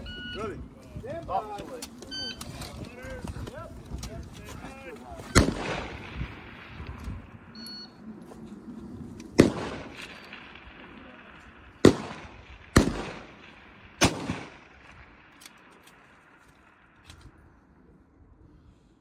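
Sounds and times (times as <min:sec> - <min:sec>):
rifle shots echoing: 0:05.2 - 0:07.7, 0:09.3 - 0:17.1.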